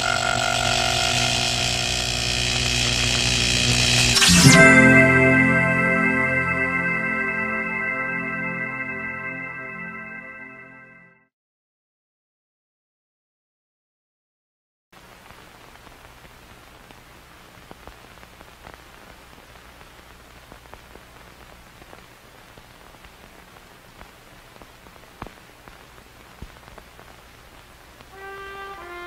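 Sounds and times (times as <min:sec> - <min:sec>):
crackles and pops: 0:00.0 - 0:04.4, 0:15.0 - 0:28.3
low hum: 0:00.0 - 0:08.0
film hiss: 0:15.0 - 0:29.0.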